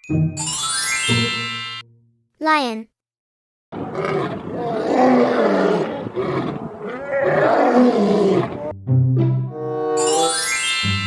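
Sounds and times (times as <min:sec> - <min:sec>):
children's music jingle: 0:02.4 - 0:02.8
lions roaring: 0:03.8 - 0:08.7.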